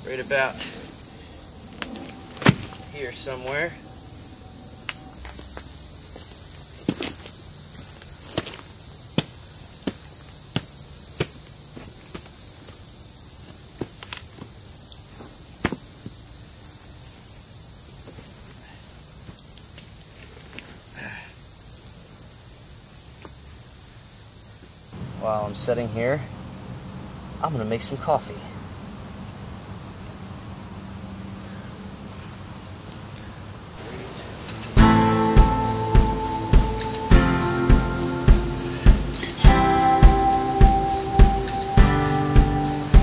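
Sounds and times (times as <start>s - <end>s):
insect chorus drone: 0.0s - 43.0s
knocks and thuds of objects set down: 1.8s - 2.8s.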